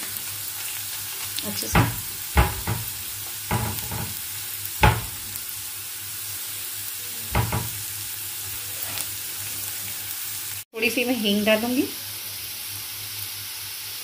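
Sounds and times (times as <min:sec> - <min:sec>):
onions sizzling in a frying pan: 0:00.0 - 0:14.0
spatula scraping a pan: 0:02.0 - 0:04.3, 0:08.6 - 0:09.9.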